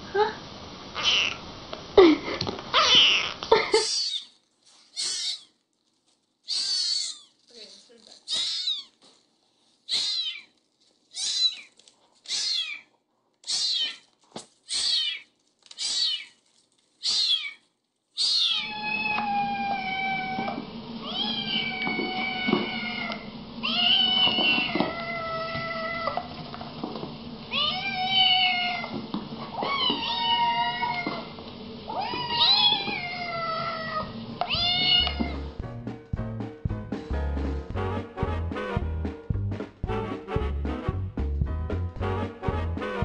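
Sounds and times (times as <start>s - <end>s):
background hiss: 0.0s - 19.0s
cat meowing long meows: 1.0s - 1.4s, 2.7s - 4.3s, 5.0s - 5.5s, 6.5s - 7.3s, 11.2s - 11.7s, 13.5s - 14.0s, 18.2s - 26.3s, 27.5s - 35.4s
kitten mewing: 1.0s - 1.4s, 2.7s - 5.5s, 6.5s - 7.4s, 8.2s - 9.0s, 9.9s - 10.5s, 11.1s - 14.1s, 14.7s - 16.4s, 17.0s - 17.6s, 18.2s - 26.2s, 31.9s - 35.5s.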